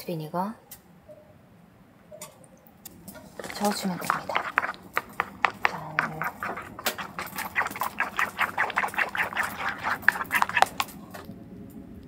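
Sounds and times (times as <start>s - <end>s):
wooden spoon stirring thick sauce: 3.2s - 11.3s.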